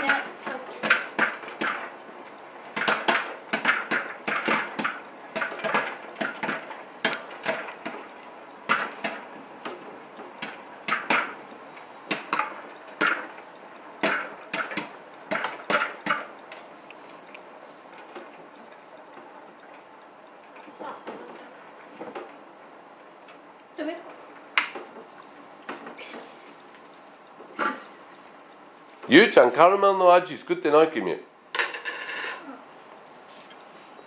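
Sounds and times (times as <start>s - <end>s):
popcorn popping: 0.0s - 19.8s.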